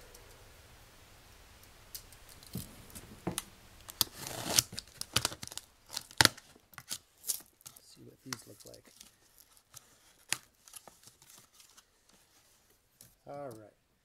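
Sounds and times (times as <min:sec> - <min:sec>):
knife slitting packing tape: 0:03.9 - 0:11.8.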